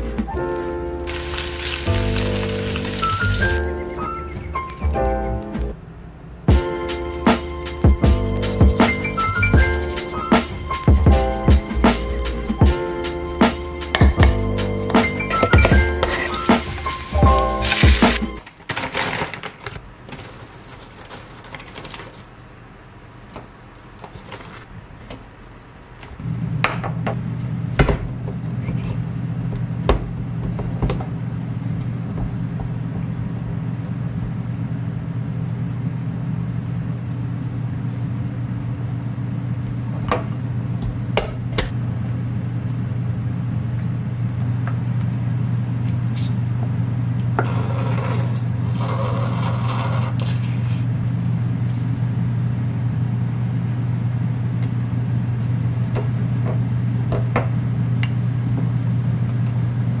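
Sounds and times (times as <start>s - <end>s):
steady low hum: 0.0s - 18.5s, 22.1s - 60.0s
squeeze bottle squirting: 1.1s - 3.6s, 16.0s - 18.3s
wooden spoon scraping glass bowl: 47.4s - 50.8s.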